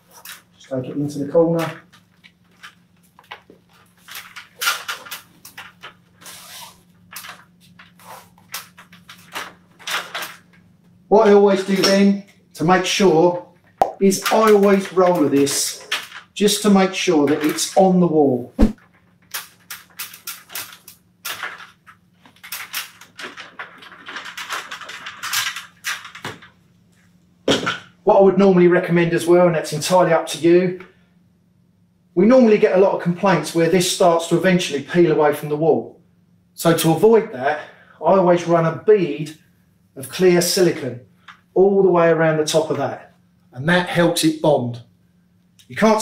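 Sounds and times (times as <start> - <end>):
vinyl flooring scraping and rustling: 0.0 - 10.6.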